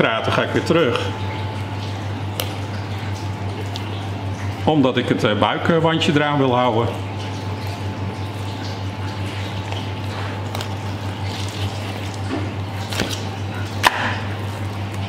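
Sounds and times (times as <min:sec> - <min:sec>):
steady low hum: 0:00.0 - 0:15.0
knife slicing wet fish flesh: 0:10.4 - 0:15.0.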